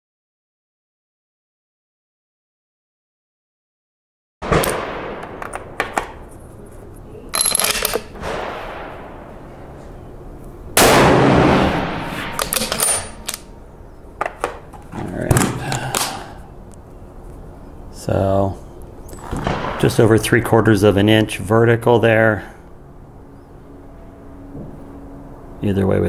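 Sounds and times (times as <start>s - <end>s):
rifle shots: 4.4s - 6.2s, 7.4s - 9.6s, 10.8s - 13.5s, 19.2s - 20.5s
rifle bolt clicking and rattling: 4.6s - 6.2s, 7.3s - 8.2s, 12.3s - 13.5s.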